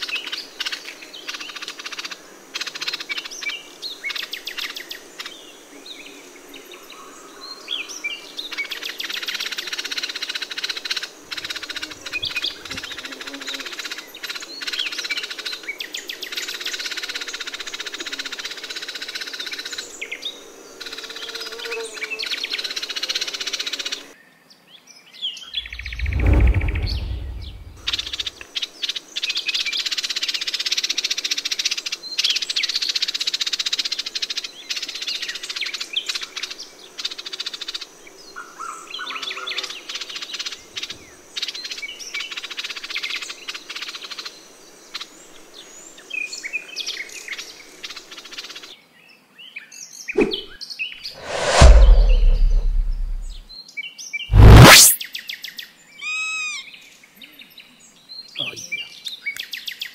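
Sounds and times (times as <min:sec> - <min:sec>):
low rumble: 0:25.6 - 0:28.3, 0:51.2 - 0:53.4.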